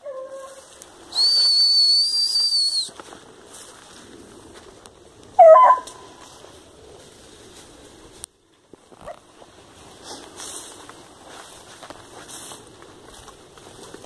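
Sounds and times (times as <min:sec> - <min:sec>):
rustling of brush: 0:00.0 - 0:14.0
person whistling: 0:01.1 - 0:03.0.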